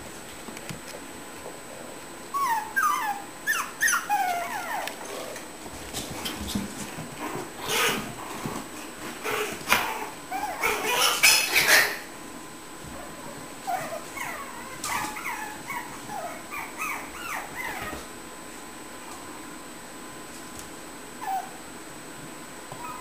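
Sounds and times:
puppies whimpering and yipping: 2.3s - 5.0s, 7.3s - 8.2s, 9.2s - 12.1s, 13.6s - 18.1s, 21.2s - 21.6s, 22.7s - 23.0s.

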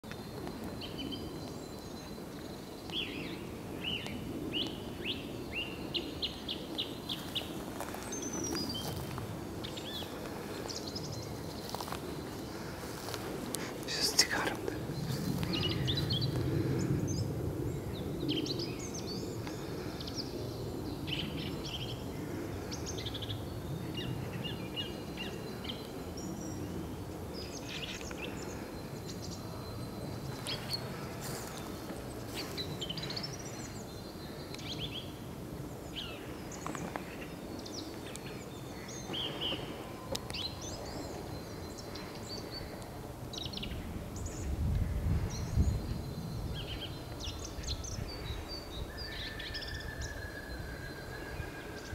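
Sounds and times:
songbird singing: 0.0s - 51.9s.

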